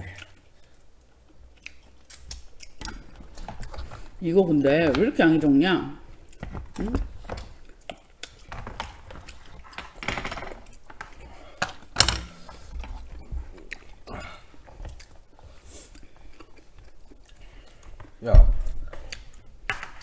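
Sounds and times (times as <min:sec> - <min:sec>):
chewing: 0:00.0 - 0:04.2, 0:06.2 - 0:10.0, 0:12.5 - 0:20.0.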